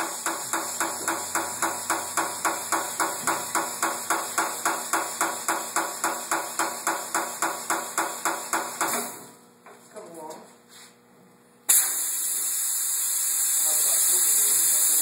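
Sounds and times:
air hose hissing spurts: 11.7 - 15.0.

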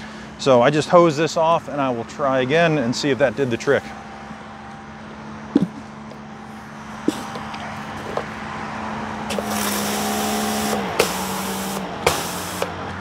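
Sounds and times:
pressure washer motor hum: 9.2 - 13.0
water jet spraying: 9.3 - 12.8.

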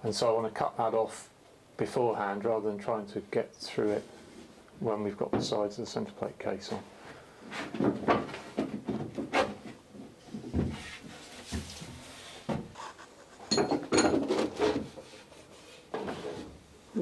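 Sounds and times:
wood knocking and rubbing on wood: 7.5 - 16.5.

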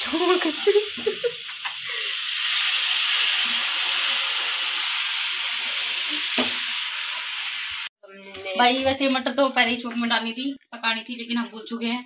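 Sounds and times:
water hissing in hot pan: 0.0 - 7.9.

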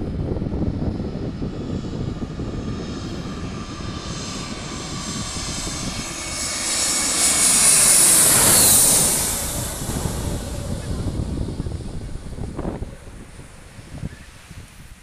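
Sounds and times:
jet airliner passing overhead: 0.0 - 15.0.

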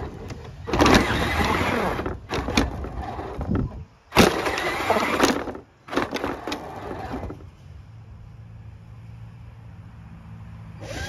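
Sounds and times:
toy truck electric motor: 0.0 - 7.5, 10.7 - 11.0.

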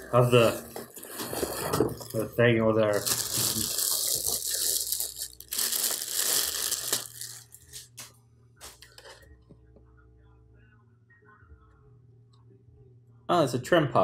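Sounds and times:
plastic bag crinkling and tearing: 0.0 - 8.1.

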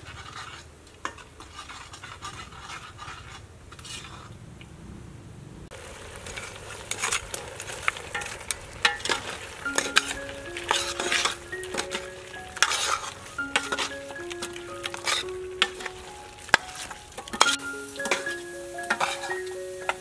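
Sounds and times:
meat sizzling: 5.7 - 20.0
ladle scraping metal pot: 6.3 - 20.0
ladle clinking against pot: 8.9 - 20.0
soft instrumental melody: 9.6 - 20.0.

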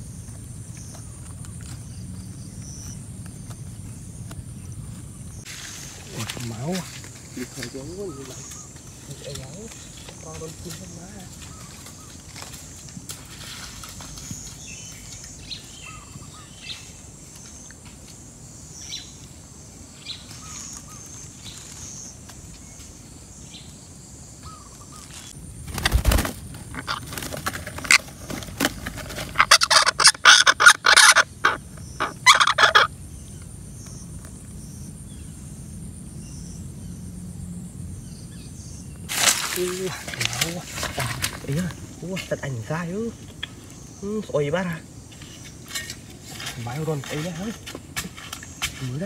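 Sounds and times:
insect hiss: 0.0 - 49.0
parakeets squawking: 29.3 - 32.9.

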